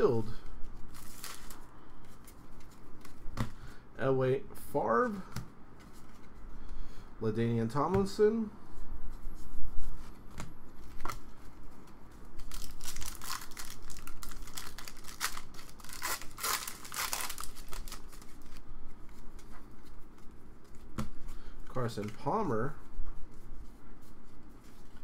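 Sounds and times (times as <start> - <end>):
wrapper tearing and crinkling: 0.9 - 1.6, 12.4 - 18.5.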